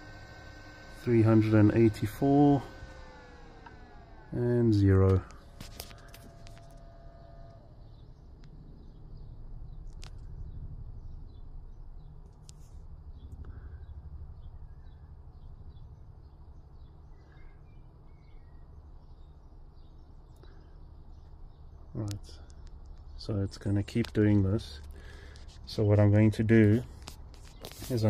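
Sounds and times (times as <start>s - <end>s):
low background rumble: 0.0s - 28.0s
faint bird chirps: 5.3s - 26.4s.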